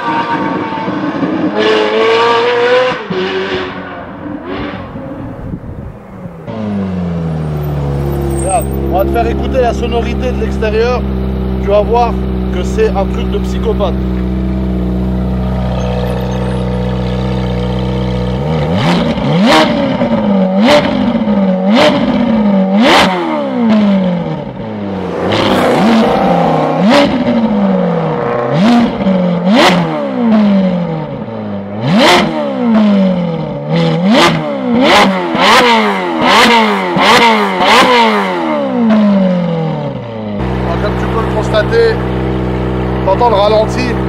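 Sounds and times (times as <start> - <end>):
sports car engine revving: 0.0 - 44.0.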